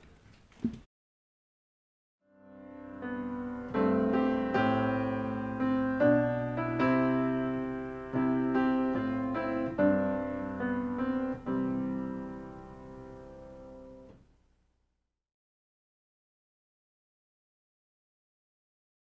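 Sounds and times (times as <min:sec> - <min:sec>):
piano music: 0:02.3 - 0:14.2.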